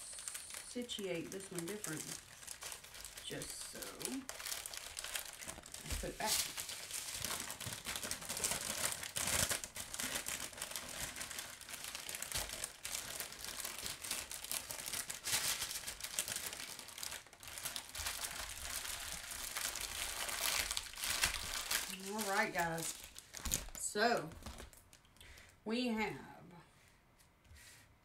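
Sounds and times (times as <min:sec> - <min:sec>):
plastic bags crinkling: 0:00.0 - 0:25.6.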